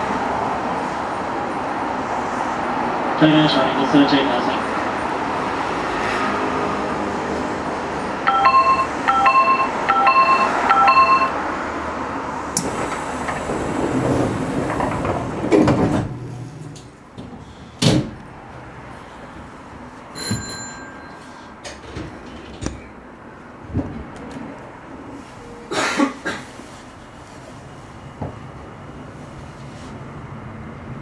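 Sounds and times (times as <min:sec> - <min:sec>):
train departure chime: 0:08.2 - 0:11.5, 0:20.1 - 0:21.6
short high beep: 0:08.3 - 0:11.4
sliding train doors closing: 0:08.3 - 0:18.6, 0:20.2 - 0:30.1.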